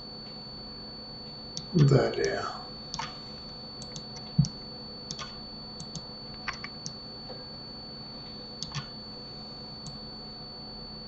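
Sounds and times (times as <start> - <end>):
faint high whine and hum: 0.0 - 11.0
keyboard and mouse clicks: 2.9 - 3.2, 3.8 - 7.0, 8.6 - 8.9.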